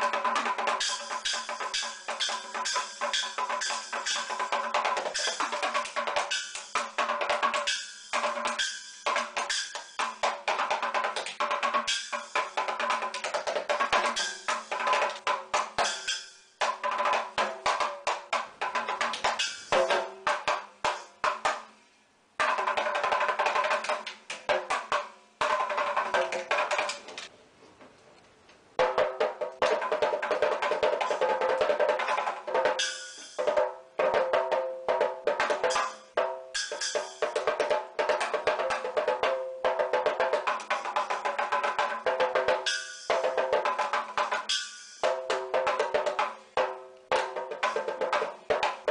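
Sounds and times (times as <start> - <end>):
small drums played with sticks: 0.0 - 28.0, 28.7 - 48.9
small cymbal hit: 15.8 - 16.4, 32.7 - 33.6, 35.6 - 37.4, 42.6 - 43.4, 44.4 - 45.4.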